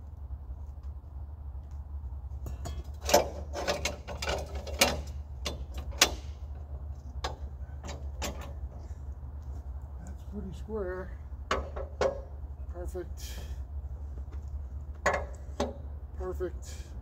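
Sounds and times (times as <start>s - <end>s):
steady low hum: 0.0s - 17.0s
clamps clicking and knocking: 2.4s - 6.6s, 7.2s - 8.8s, 11.5s - 12.3s, 15.0s - 15.9s.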